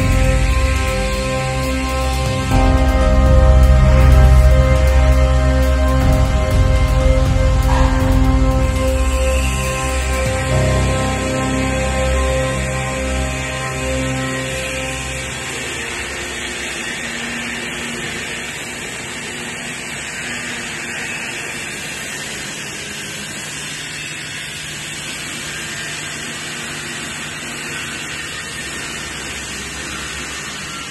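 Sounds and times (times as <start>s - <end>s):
low machinery hum: 0.0s - 30.9s
machinery hissing: 0.0s - 30.9s.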